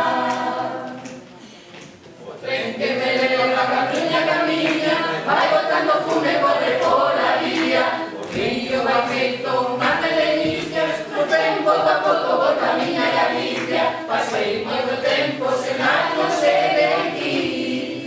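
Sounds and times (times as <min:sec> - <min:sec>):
small choir singing unaccompanied: 0:00.0 - 0:01.4, 0:02.2 - 0:18.0.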